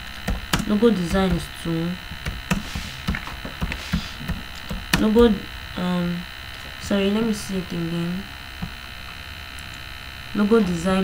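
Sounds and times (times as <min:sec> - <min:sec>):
electrical mains hum: 0:00.0 - 0:11.0
computer keyboard typing: 0:00.2 - 0:01.5, 0:02.1 - 0:05.3.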